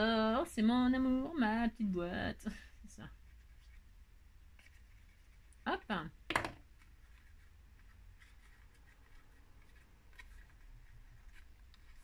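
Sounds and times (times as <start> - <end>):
paper card rustling and tapping: 6.2 - 12.0.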